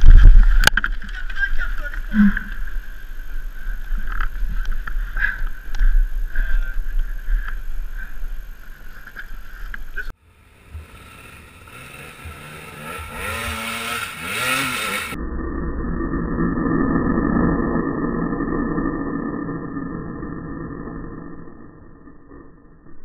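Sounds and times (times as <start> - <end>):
dirt bike engine revving: 10.4 - 15.2
low rumble: 14.4 - 23.0.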